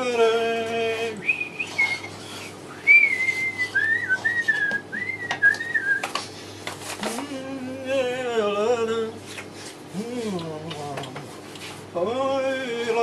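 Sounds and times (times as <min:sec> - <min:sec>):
man whistling a slow tune: 0:01.2 - 0:06.1.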